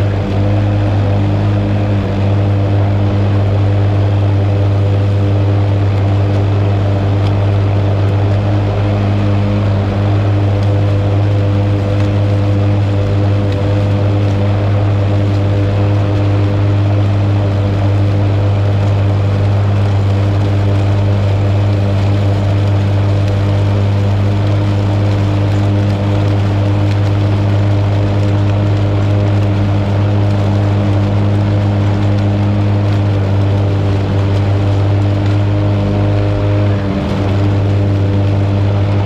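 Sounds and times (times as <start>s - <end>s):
lawn mower engine running: 0.0s - 39.0s.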